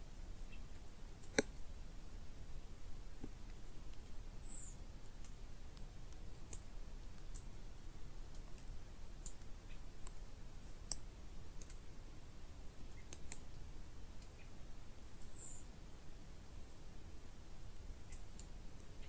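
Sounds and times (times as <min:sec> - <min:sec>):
faint low background rumble: 0:00.0 - 0:19.0
small ticks and clicks: 0:00.7 - 0:01.7, 0:03.2 - 0:07.6, 0:08.2 - 0:11.9, 0:12.8 - 0:14.6, 0:18.0 - 0:19.0.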